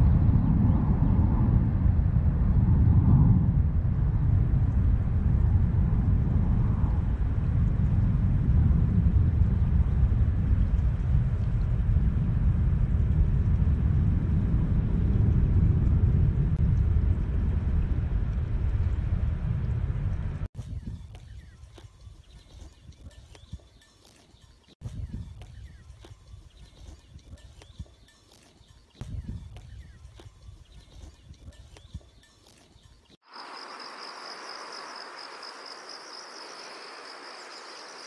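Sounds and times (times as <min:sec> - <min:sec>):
steady low rumble: 0:00.0 - 0:23.7.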